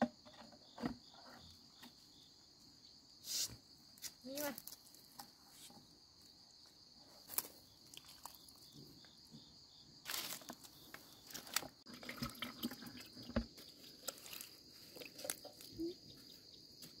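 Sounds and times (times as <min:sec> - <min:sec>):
crickets chirring: 0:00.0 - 0:17.0.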